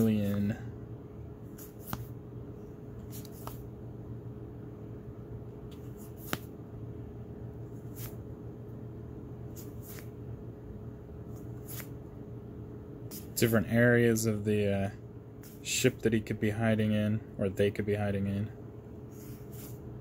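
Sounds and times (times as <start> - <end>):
steady low hum: 0.0 - 20.0
cards flipped by hand: 1.5 - 2.2, 3.0 - 3.7, 5.7 - 6.5, 7.8 - 8.2, 9.5 - 10.1, 11.3 - 12.0, 19.2 - 19.8.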